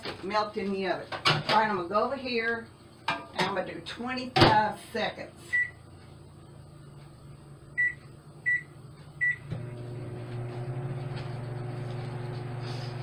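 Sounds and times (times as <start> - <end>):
microwave oven humming: 5.4 - 13.0
microwave keypad beeps: 5.5 - 5.8, 7.8 - 9.5.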